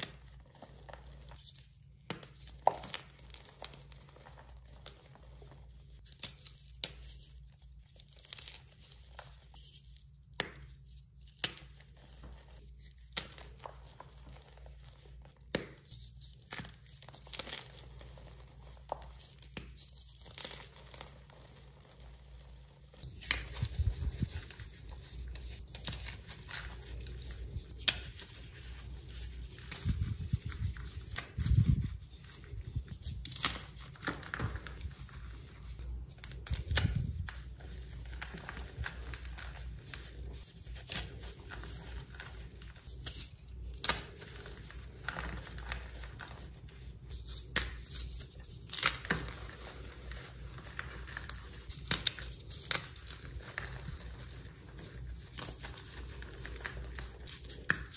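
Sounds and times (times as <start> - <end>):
chalk crumbling by hand: 0.0 - 57.9
chalk crunching and snapping: 0.0 - 57.9.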